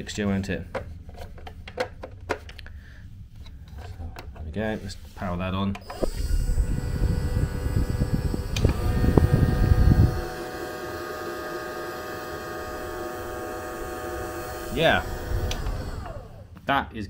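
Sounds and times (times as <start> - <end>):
bubble machine motor whine: 5.8 - 16.6
click: 8.5 - 8.8.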